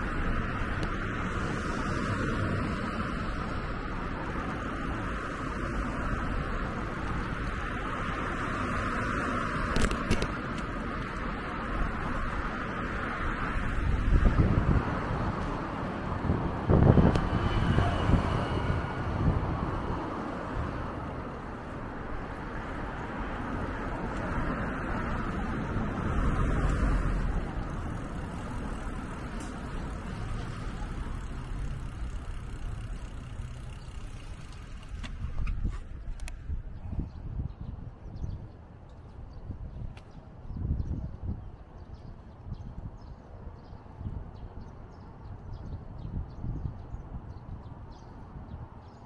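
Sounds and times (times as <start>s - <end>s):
cars passing in rumble: 0.0s - 37.8s.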